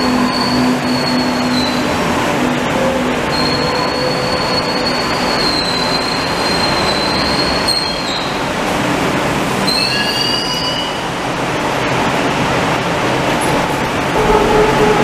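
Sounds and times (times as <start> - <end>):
high thin brake squeals: 0.0 - 2.0, 3.3 - 8.4, 9.6 - 11.1
metro train braking rumble: 0.0 - 15.0.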